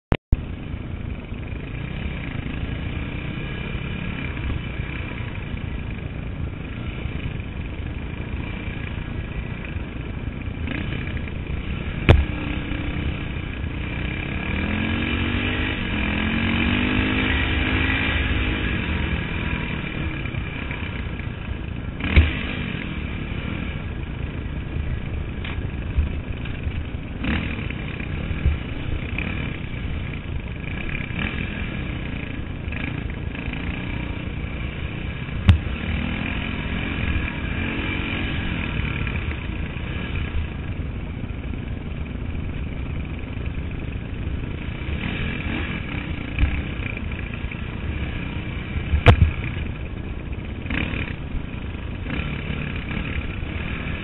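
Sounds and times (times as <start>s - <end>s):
dirt bike engine revving: 1.2s - 54.0s
sharp knocks: 12.0s - 12.4s.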